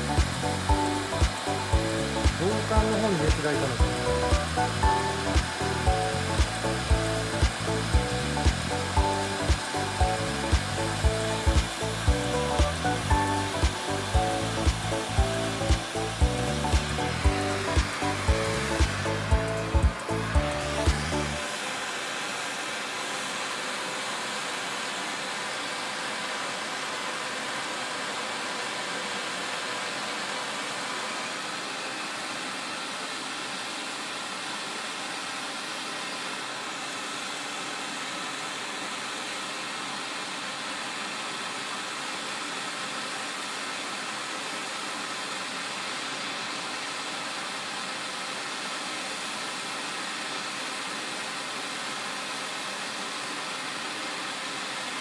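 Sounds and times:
torch flame hissing: 0.0s - 40.1s.

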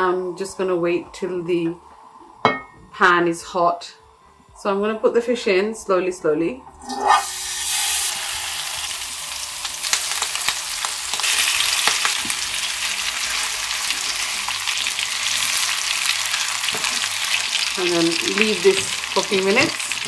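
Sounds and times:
fish sizzling in oil: 7.1s - 20.0s.

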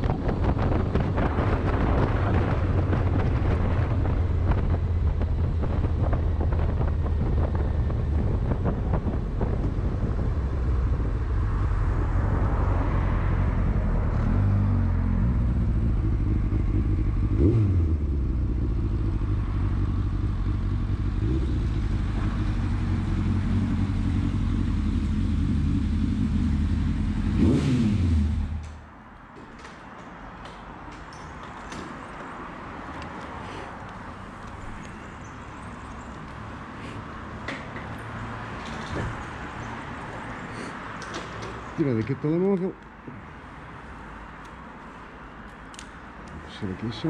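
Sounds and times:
wind buffeting microphone: 0.0s - 13.9s
motorcycle engine running: 15.2s - 28.6s.

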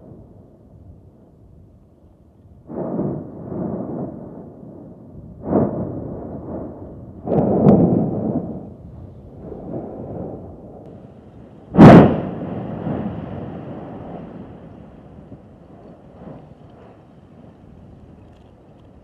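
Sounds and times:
deep volcanic explosion booms: 2.5s - 19.0s.

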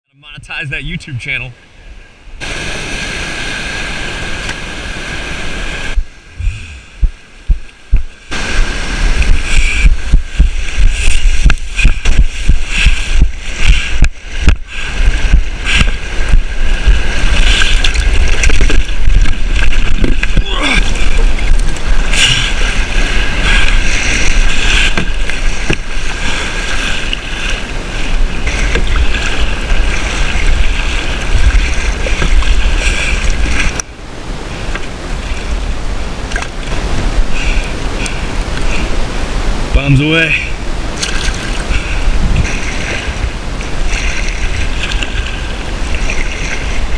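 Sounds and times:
water splashing around hull: 0.6s - 46.9s
heavy low rumble: 5.7s - 26.6s.

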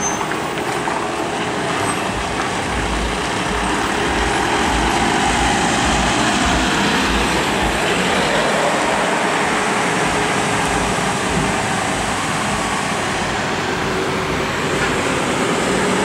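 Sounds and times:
lorry diesel engine rumbling: 0.0s - 16.0s.

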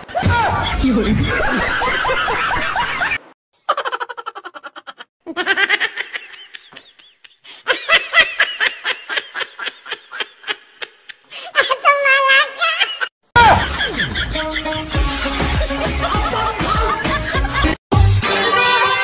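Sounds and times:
high-pitched laughter: 1.3s - 14.9s.

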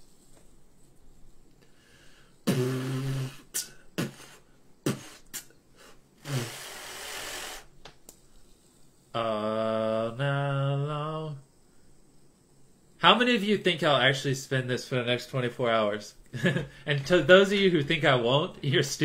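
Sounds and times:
man humming: 2.4s - 5.5s, 6.2s - 7.6s, 9.2s - 11.4s
man making beatbox mouth noises: 2.4s - 5.6s, 6.2s - 7.6s.

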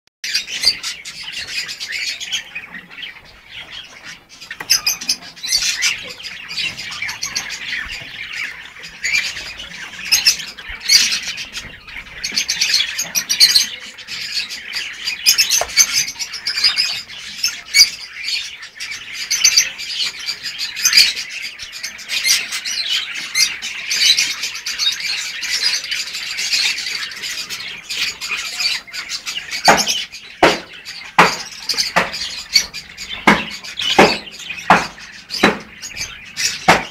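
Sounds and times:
lovebirds chirping and squawking: 0.2s - 36.9s
sharp knocks: 29.7s - 35.8s, 36.6s - 36.9s.

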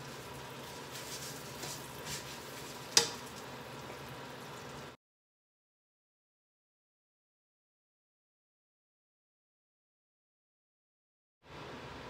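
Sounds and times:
spaghetti sizzling in butter: 0.0s - 5.0s
metal tongs clacking on pan: 3.0s - 3.3s.

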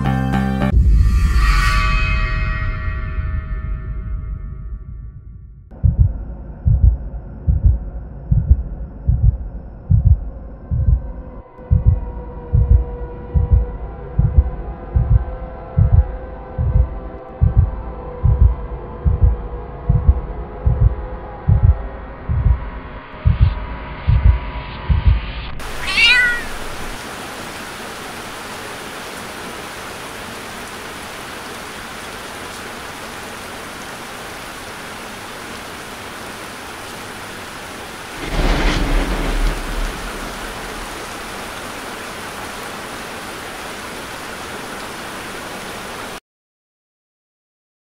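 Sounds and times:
low thumps: 0.8s - 25.3s, 38.2s - 41.5s
thunder crack and rumble: 3.4s - 26.9s, 37.9s - 42.0s
cat meowing: 25.6s - 27.0s
steady rain: 25.6s - 46.2s.

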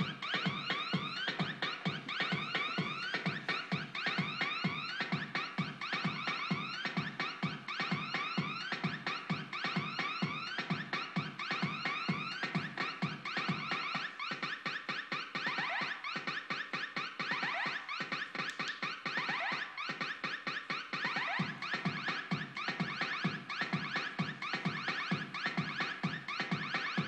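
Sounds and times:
pulsing bass beat: 0.0s - 27.0s.

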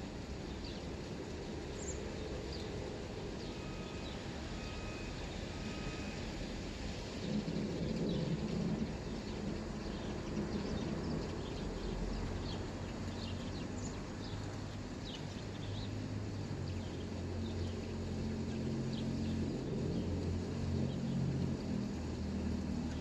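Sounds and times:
distant vehicle engine drone: 0.0s - 23.0s
rain hiss: 0.0s - 23.0s
songbirds chirping: 0.3s - 6.4s, 7.1s - 23.0s.

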